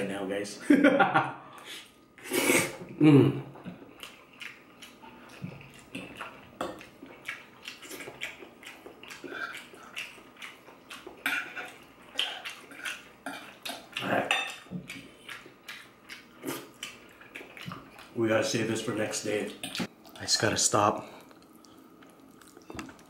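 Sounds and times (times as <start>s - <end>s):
wet chewing and lip-smacking: 3.6s - 18.2s, 21.2s - 23.0s.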